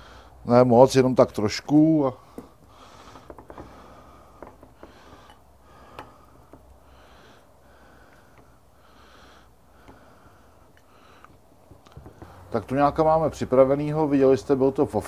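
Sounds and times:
faint clicks and taps: 2.4s - 3.8s, 4.4s - 6.8s, 10.7s - 12.6s.

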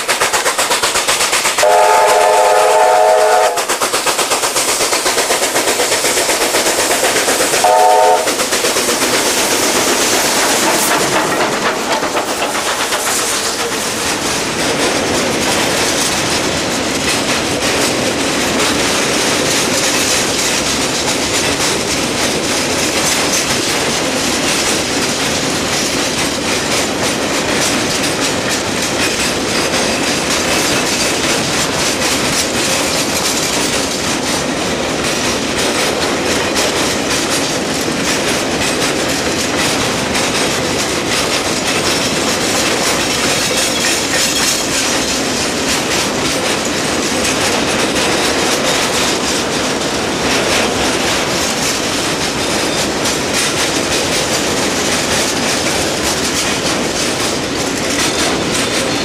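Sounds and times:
steam locomotive working hard: 0.0s - 59.0s
steam whistle blast: 1.6s - 3.8s, 7.6s - 8.4s
wagon wheels clattering over rail joints: 3.5s - 59.0s.

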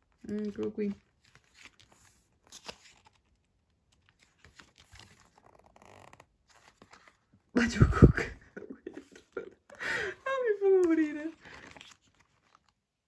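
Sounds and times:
photobook pages turning: 0.0s - 7.5s, 10.8s - 13.0s.

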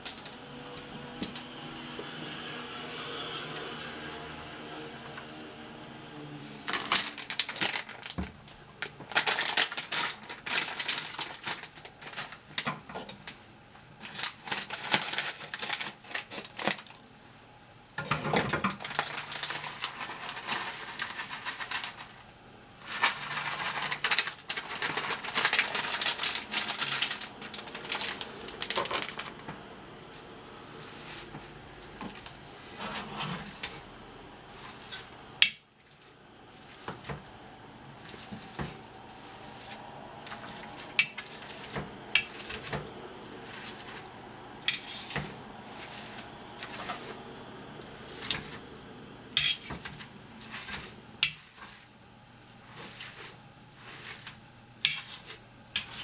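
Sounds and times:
metal masher scraping a pan: 44.7s - 47.2s, 49.4s - 51.8s, 52.7s - 56.0s.

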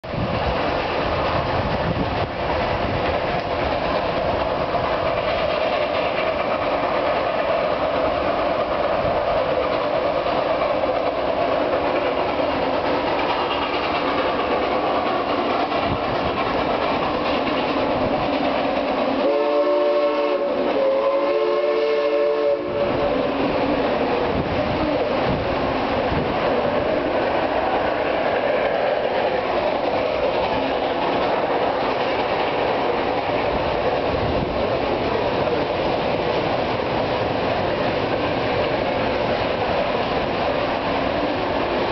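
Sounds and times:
steam train rumbling past: 0.0s - 41.9s
multi-tone train whistle: 19.1s - 23.5s.

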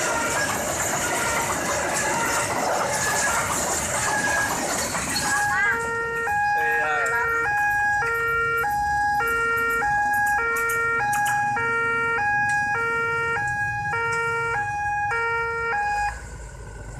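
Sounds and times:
two-tone level crossing alarm: 0.0s - 16.2s.

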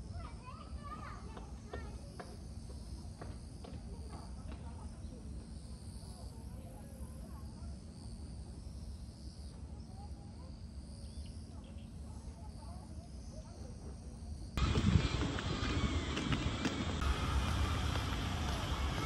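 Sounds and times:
high-pitched insect chorus: 1.6s - 19.0s
loud noisy sound: 14.6s - 19.0s
low background rumble: 14.6s - 19.0s.

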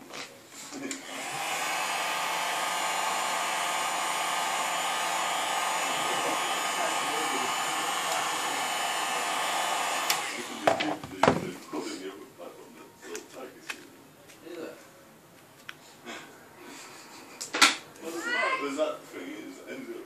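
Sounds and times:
heat gun blowing air: 1.0s - 10.7s.

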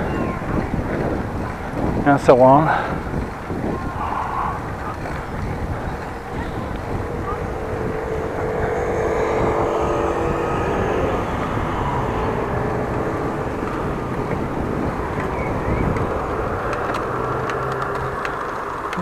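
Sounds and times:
rolling road noise: 0.0s - 19.0s
wind on microphone: 0.0s - 19.0s
humming tone: 3.9s - 19.0s.

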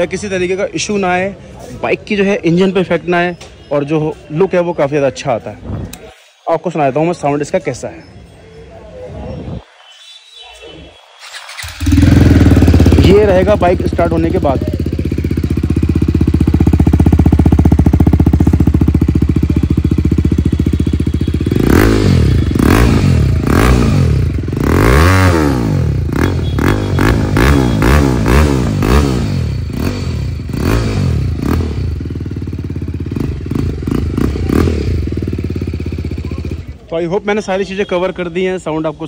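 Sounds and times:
motorcycle engine revving: 11.1s - 36.9s.

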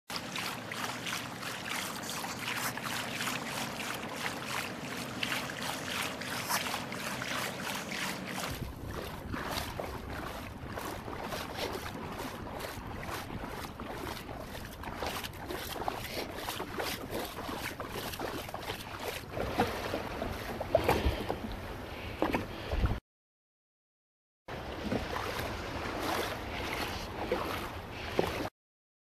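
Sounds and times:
water splashing against kayak hull: 0.1s - 23.0s, 24.5s - 28.5s
wind buffeting microphone: 8.4s - 13.8s.

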